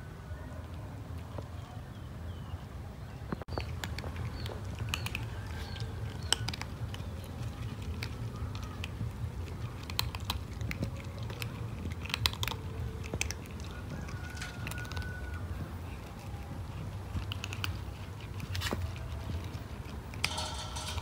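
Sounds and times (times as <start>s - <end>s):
low background rumble: 0.0s - 21.0s
cat crunching dry kibble: 3.5s - 21.0s.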